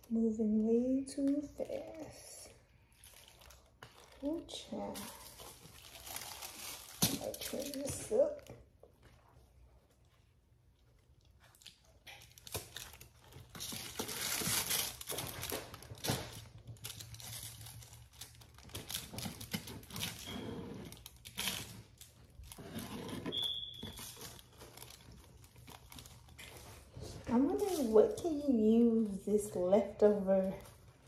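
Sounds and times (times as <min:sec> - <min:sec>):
high squeak: 0:23.1 - 0:24.2.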